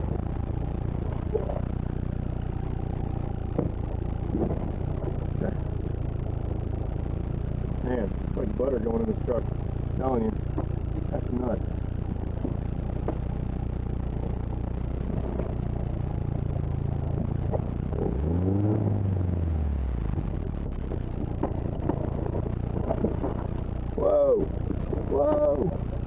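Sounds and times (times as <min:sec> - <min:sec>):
engine crawling and revving: 0:00.0 - 0:26.0
vehicle clatter and knocks: 0:03.4 - 0:06.0, 0:10.4 - 0:11.1, 0:12.0 - 0:13.5, 0:14.2 - 0:18.1, 0:20.1 - 0:26.0.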